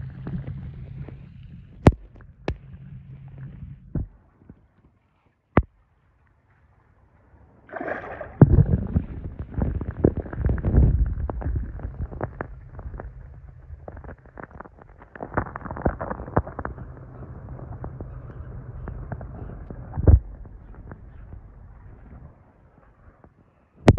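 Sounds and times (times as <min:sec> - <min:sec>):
low underwater rumble: 0:00.0 - 0:04.8, 0:07.4 - 0:23.9
underwater clicks and knocks: 0:07.8 - 0:22.3.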